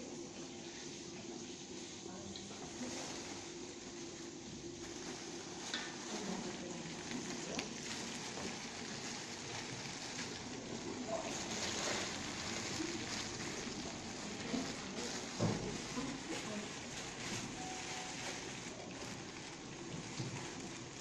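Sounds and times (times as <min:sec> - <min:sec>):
frying pan sizzling: 0:04.8 - 0:21.0.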